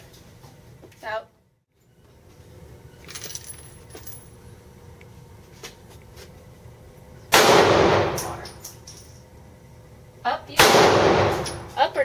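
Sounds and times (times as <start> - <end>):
small metal pieces clinking: 3.1 - 4.3.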